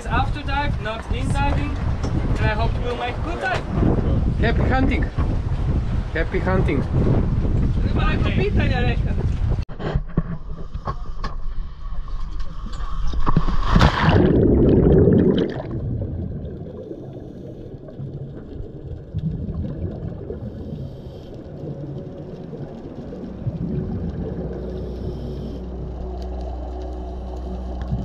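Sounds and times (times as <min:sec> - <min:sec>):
muffled underwater rumble: 0:06.9 - 0:28.0
loud splash into water: 0:13.6 - 0:16.3
regulator breath bubbling: 0:14.1 - 0:22.2, 0:23.1 - 0:28.0.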